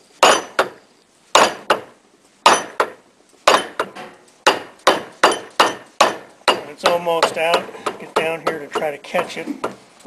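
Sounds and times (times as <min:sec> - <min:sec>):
rubber mallet striking metal shaft: 0:02.5 - 0:08.9.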